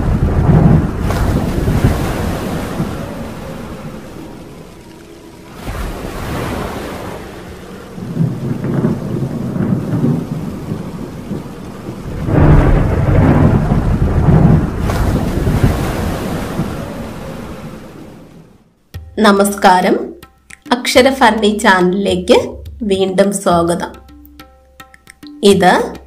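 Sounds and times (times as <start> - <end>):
rolling thunder: 0.0 - 4.6, 5.6 - 18.5
rain: 0.0 - 18.8.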